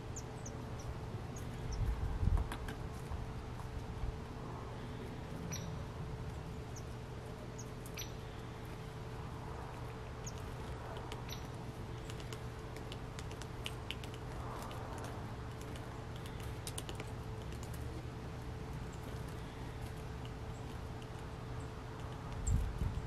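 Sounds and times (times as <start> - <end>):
small birds chip calls: 0.0 - 2.8, 4.5 - 23.0
steady low hum: 0.0 - 23.0.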